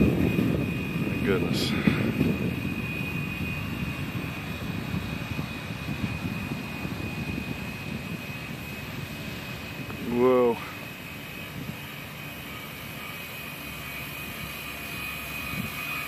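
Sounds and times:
faint high whine: 0.0 - 16.0
wind buffeting microphone: 0.0 - 16.0.

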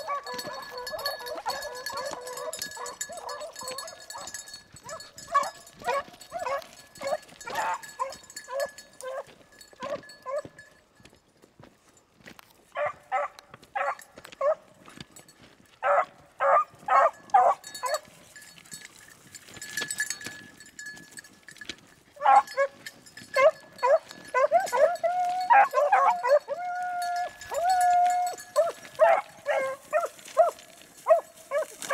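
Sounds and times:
beagles baying: 0.0 - 10.6, 15.8 - 18.1, 22.2 - 31.9.

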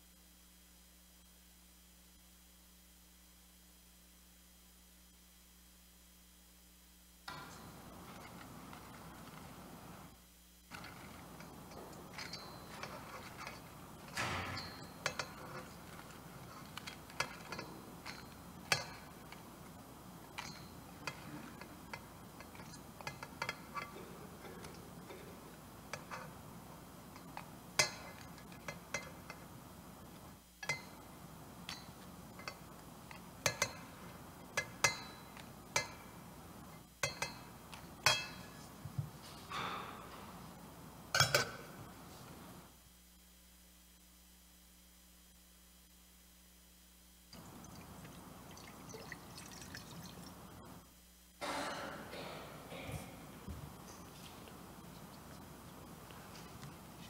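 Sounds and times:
clinks of metal vessels: 10.7 - 19.4, 20.2 - 25.3, 27.2 - 29.4, 30.6 - 31.0, 31.6 - 36.1, 37.0 - 38.6, 41.2 - 41.6.

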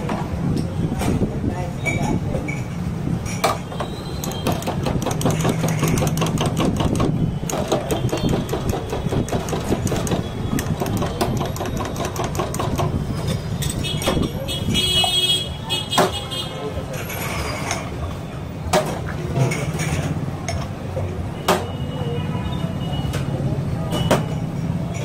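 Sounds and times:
spoon clattering against glasses: 4.2 - 13.0.

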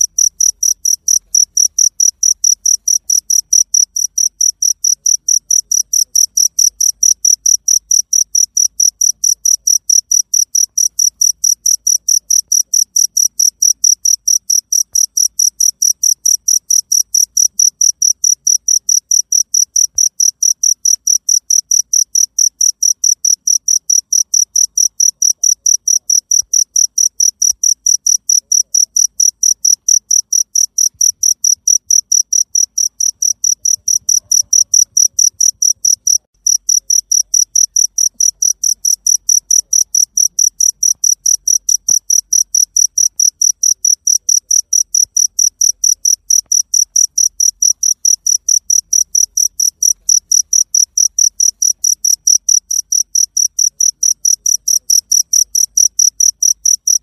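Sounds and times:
cricket chirping: 0.0 - 57.0.

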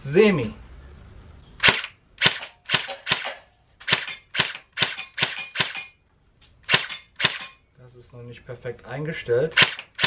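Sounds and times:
airsoft gun single shots: 1.6 - 6.0, 6.6 - 7.6, 9.6 - 10.0.

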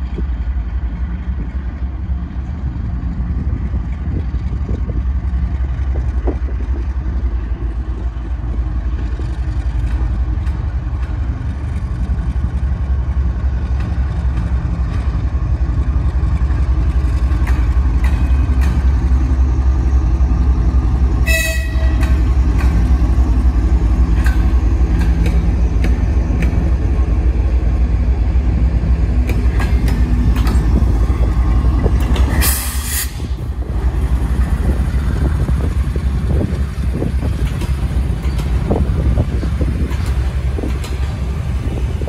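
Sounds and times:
diesel locomotive engine drone: 0.0 - 42.0
wheels clicking over rail joints: 3.7 - 42.0
train horn toot: 21.2 - 22.2.

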